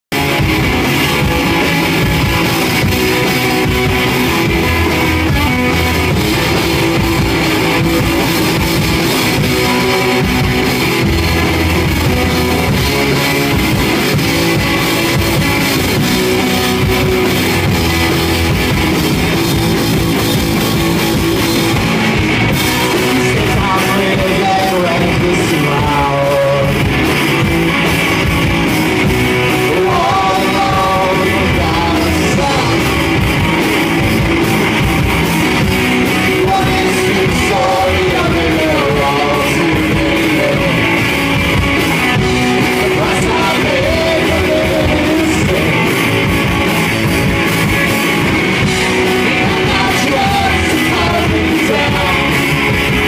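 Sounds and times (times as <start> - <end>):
electric guitars: 0.0 - 53.0
drum kit: 0.1 - 53.0.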